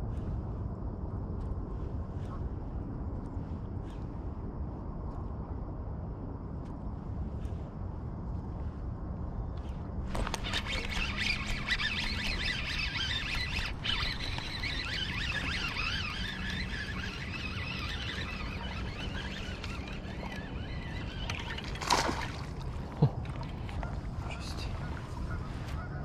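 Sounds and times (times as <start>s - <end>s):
fishing reel whining: 10.1s - 23.6s.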